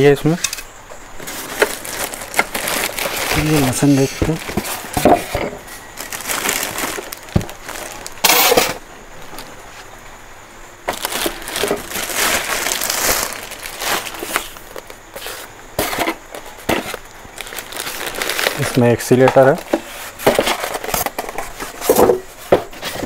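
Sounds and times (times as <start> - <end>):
plastic bag crinkling: 1.2 - 9.6, 10.9 - 19.8.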